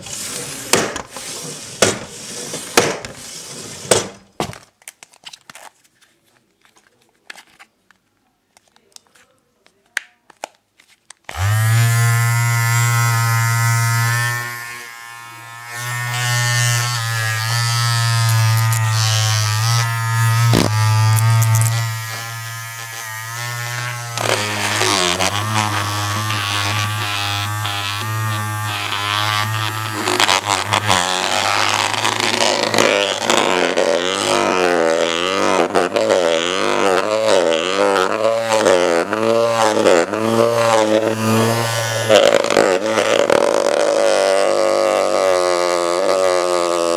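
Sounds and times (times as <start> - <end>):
small electric motor buzzing: 11.3 - 46.9.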